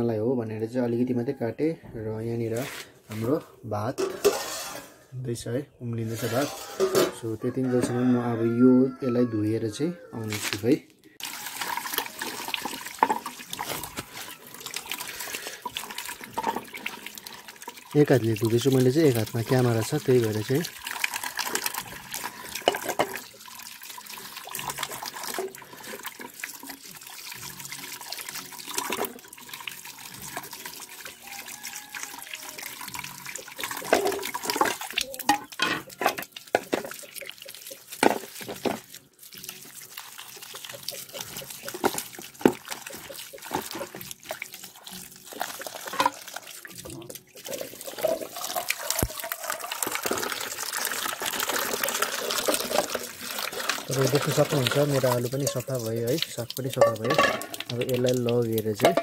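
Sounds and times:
running water pouring: 0:06.0 - 0:09.5, 0:10.1 - 0:59.0
potatoes knocking metal bowl: 0:58.6 - 0:59.0.

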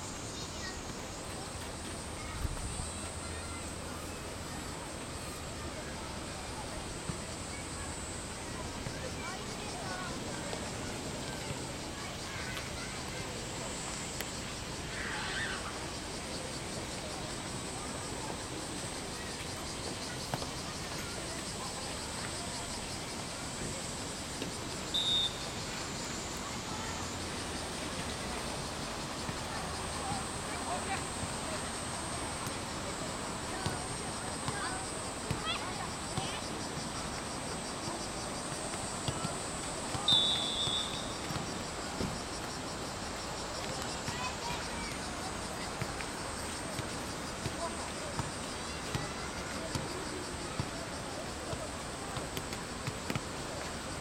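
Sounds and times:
high insect drone: 0:00.0 - 0:54.0
low background noise: 0:00.0 - 0:54.0
referee's whistle blast: 0:24.9 - 0:25.4, 0:40.0 - 0:41.1.

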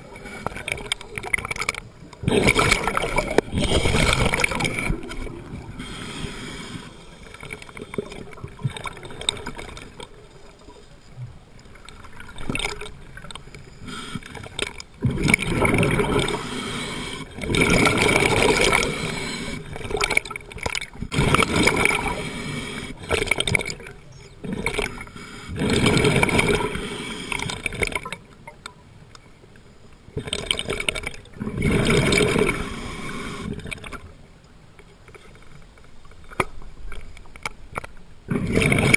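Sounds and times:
exhaled breaths bubbling underwater: 0:00.0 - 0:10.0, 0:12.1 - 0:28.2, 0:30.2 - 0:34.0, 0:38.3 - 0:38.9
diver inhaling through regulator: 0:03.5 - 0:08.2, 0:13.7 - 0:14.5, 0:16.1 - 0:19.8, 0:21.2 - 0:23.4, 0:24.4 - 0:27.7, 0:31.6 - 0:33.7.

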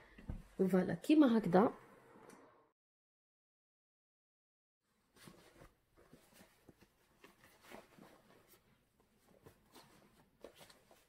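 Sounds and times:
rustling of folded jeans: 0:04.9 - 0:11.0.

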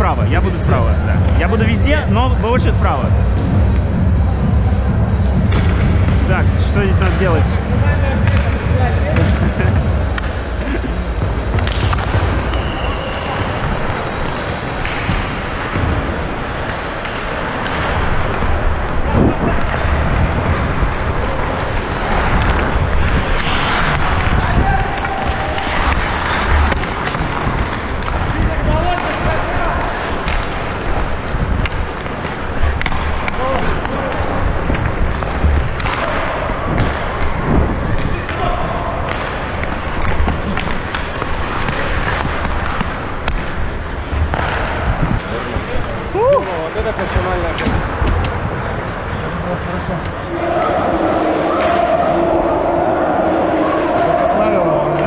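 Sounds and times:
low rumble: 0:00.0 - 0:16.8
hockey sticks and puck clacking: 0:09.2 - 0:49.2, 0:50.0 - 0:52.3
skates cutting on ice: 0:20.9 - 0:37.4, 0:39.0 - 0:45.5
wind on microphone: 0:43.7 - 0:46.3.

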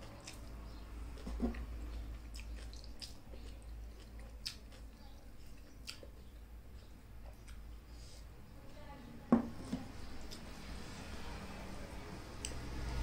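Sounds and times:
person chewing: 0:00.0 - 0:00.6, 0:01.2 - 0:07.9.

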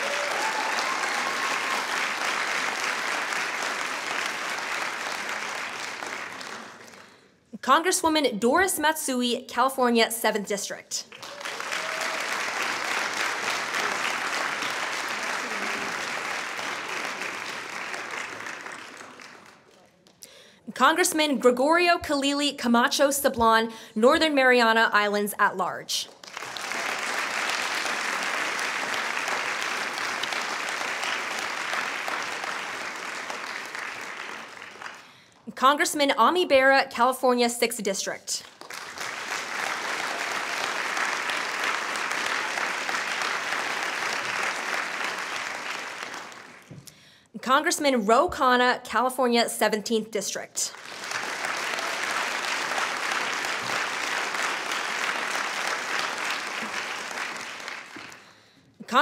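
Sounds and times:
audience applauding: 0:00.0 - 0:07.3, 0:11.0 - 0:20.4, 0:26.1 - 0:35.4, 0:38.4 - 0:47.0, 0:50.7 - 0:58.5.

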